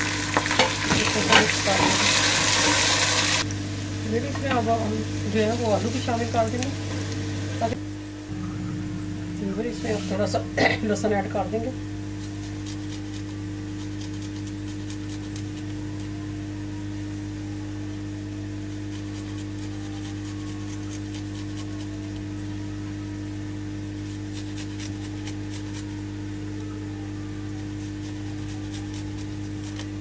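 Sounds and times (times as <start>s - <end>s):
vegetables frying in oil: 0.0s - 7.8s
appliance hum: 0.0s - 30.0s.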